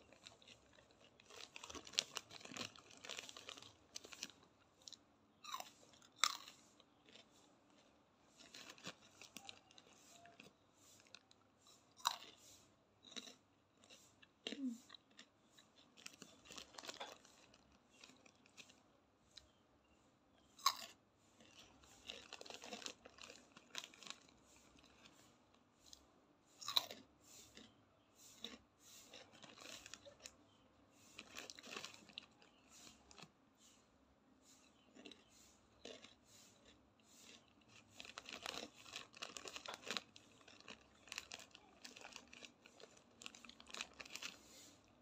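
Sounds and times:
crunchy snack being chewed: 0.0 - 19.6, 20.4 - 33.8, 34.4 - 45.0.

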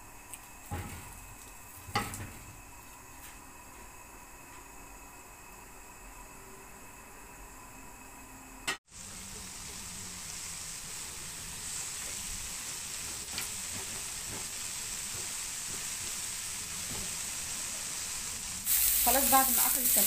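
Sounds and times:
sausages sizzling in a pan: 8.9 - 20.0.

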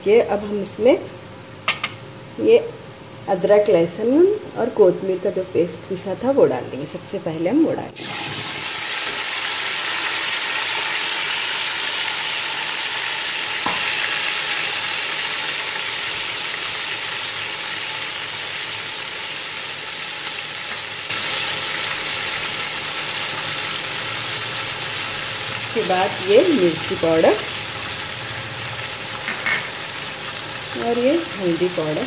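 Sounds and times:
paste sizzling in hot oil: 8.0 - 32.0.

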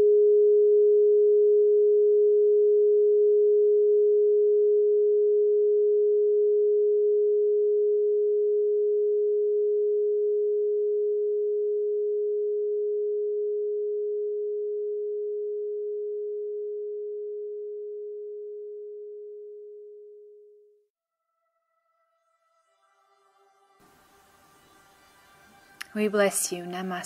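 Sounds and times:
steady pure tone: 21.2 - 27.0.

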